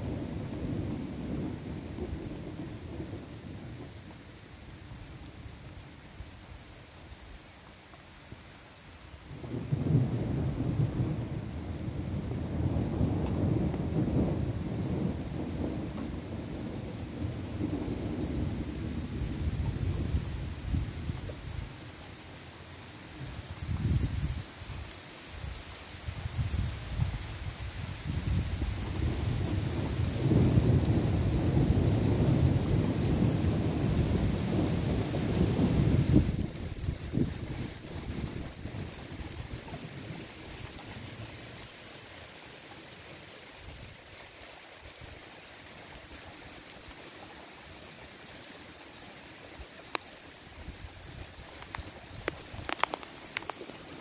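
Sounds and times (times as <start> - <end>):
rain hiss: 0.0 - 54.0
thunder rumbling: 9.4 - 21.6, 28.1 - 41.4.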